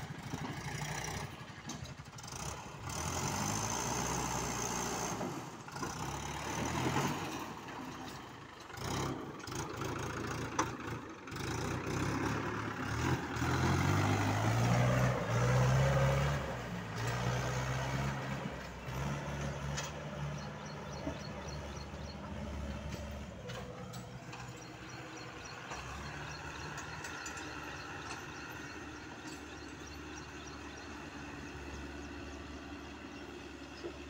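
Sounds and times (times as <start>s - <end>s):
tractor diesel engine under load: 0.0s - 34.0s.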